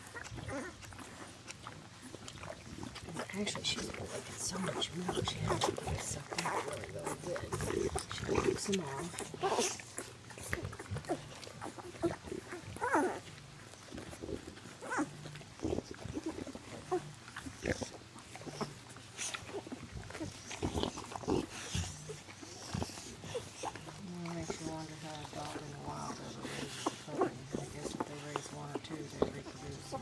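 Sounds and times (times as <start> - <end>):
puppies squeaking and grunting: 0.0 - 30.0
wet licking and suckling: 0.0 - 30.0.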